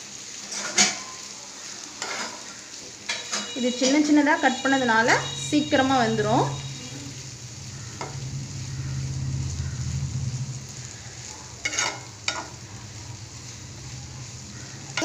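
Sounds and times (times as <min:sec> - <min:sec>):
food sizzling in oil: 0:00.0 - 0:15.0
low hum: 0:05.0 - 0:15.0.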